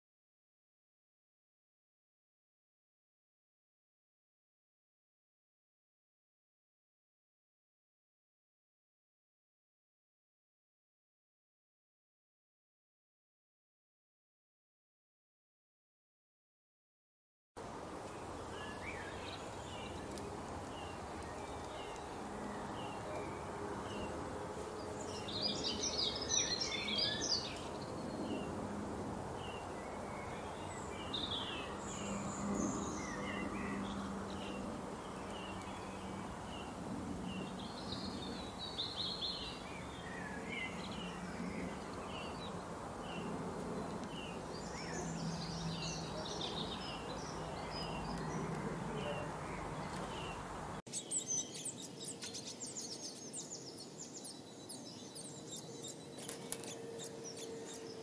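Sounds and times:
small birds chirping: 18.0 - 28.6, 29.4 - 58.0.

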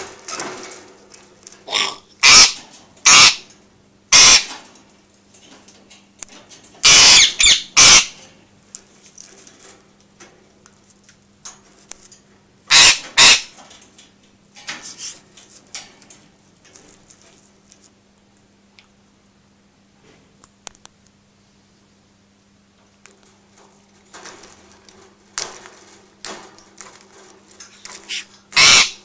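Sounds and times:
parakeet screeching: 1.7 - 3.4, 4.1 - 4.5, 6.8 - 8.2, 12.7 - 13.5, 28.1 - 29.0.

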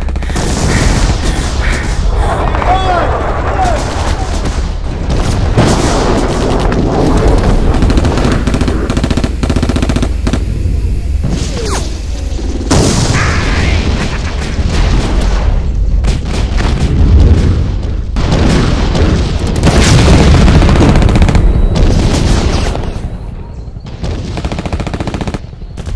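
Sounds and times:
rapid gunfire: 0.0 - 2.7, 3.6 - 10.5, 13.9 - 22.9, 24.0 - 25.9
low rumble: 0.0 - 22.5
explosions booming: 0.0 - 24.6.

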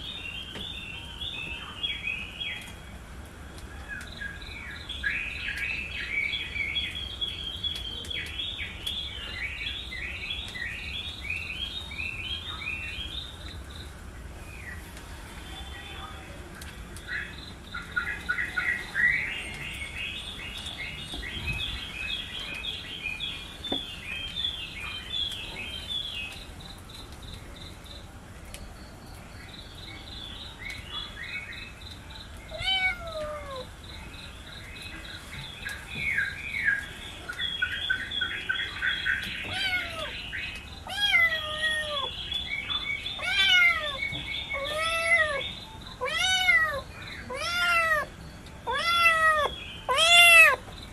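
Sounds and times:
kittens meowing: 32.5 - 33.7, 39.4 - 40.2, 40.8 - 42.1, 43.2 - 48.1, 48.7 - 50.6.

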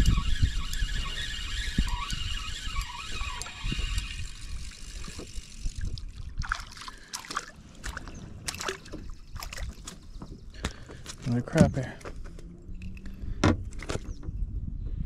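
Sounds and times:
fishing reel gears whirring: 0.0 - 5.9
fish splashing at water surface: 5.0 - 10.0.

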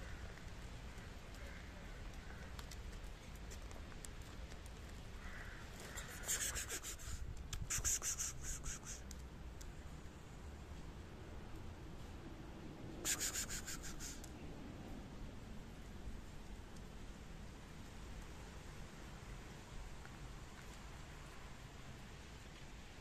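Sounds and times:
cats chewing and licking: 2.0 - 5.1.

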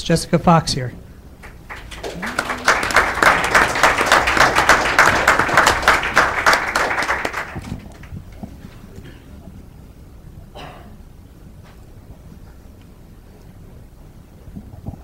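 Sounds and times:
audience applauding: 1.4 - 9.0.

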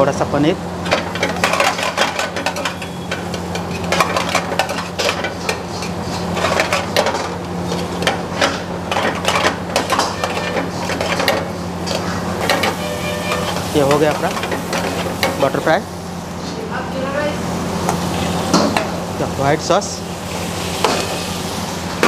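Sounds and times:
food sizzling: 0.9 - 22.0
ladle scraping steel pan: 9.8 - 11.4, 12.4 - 13.9.

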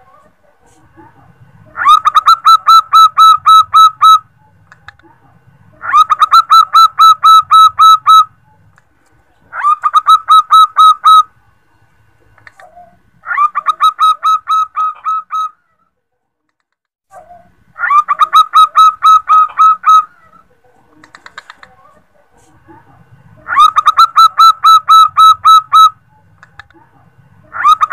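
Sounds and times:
dove calling rapid notes: 1.6 - 5.0, 5.7 - 8.9, 9.5 - 11.4, 12.4 - 15.6, 17.3 - 22.0, 23.3 - 26.8, 27.4 - 27.9.

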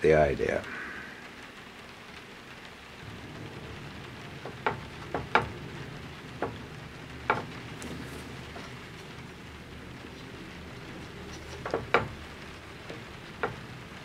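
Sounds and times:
steady low hiss: 0.0 - 14.0
wooden knocks and taps: 4.4 - 9.2, 11.0 - 13.8.

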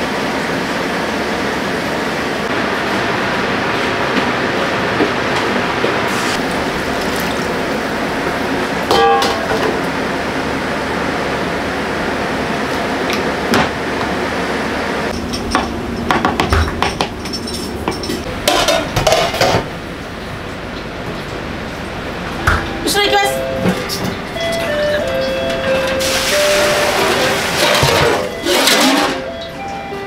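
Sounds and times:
loud rush of wok cooking: 0.0 - 22.8, 23.8 - 29.7
metal ladle clanking on wok: 8.9 - 9.6
clattering dishes: 8.9 - 9.8, 15.2 - 19.7, 26.4 - 29.5.

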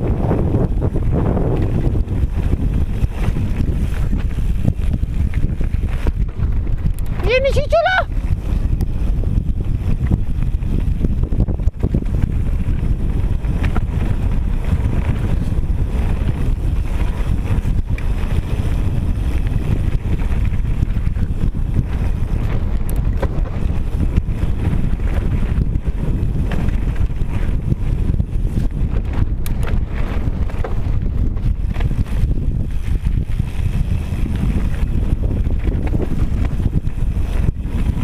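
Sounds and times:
bike knocks and rattles: 0.0 - 7.3, 8.2 - 38.0
tyres rolling over gravel: 0.0 - 7.3
wind buffeting microphone: 0.0 - 38.0.

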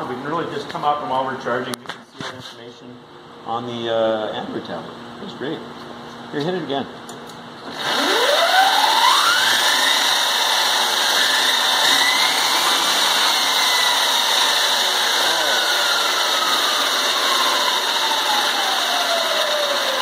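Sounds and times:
electric motor whine: 7.7 - 20.0
rushing mechanical noise: 7.7 - 20.0.

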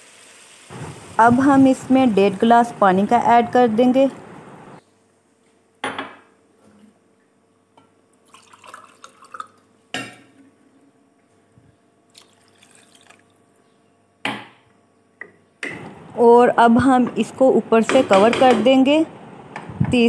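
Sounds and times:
liquid dripping: 8.2 - 9.7, 12.1 - 13.5.

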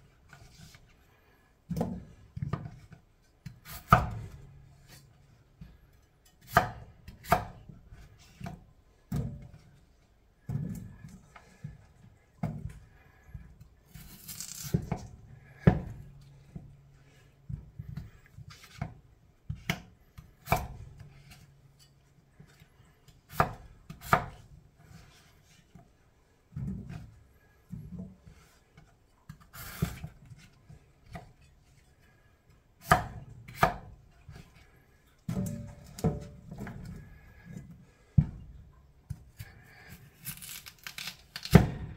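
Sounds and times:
knife chopping on cutting board: 6.5 - 7.6, 23.3 - 24.4, 32.8 - 33.9.

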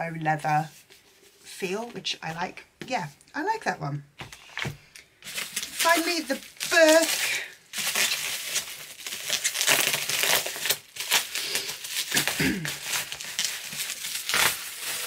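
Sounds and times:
bubble wrap crinkling: 4.2 - 15.0.

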